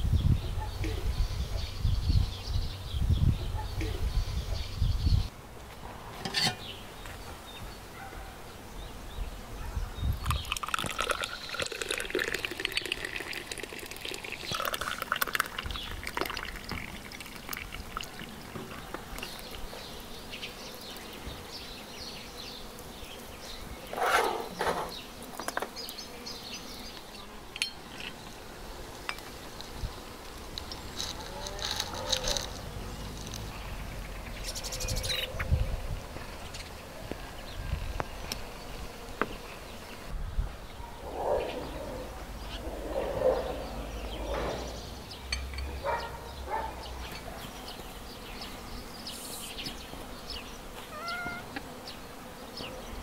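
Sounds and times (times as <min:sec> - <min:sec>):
tea trickling into a glass: 0:10.2 - 0:18.3.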